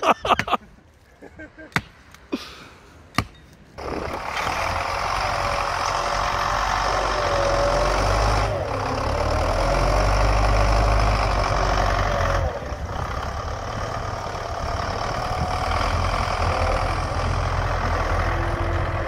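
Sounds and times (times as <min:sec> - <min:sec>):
tractor diesel engine under load: 0:03.8 - 0:19.0.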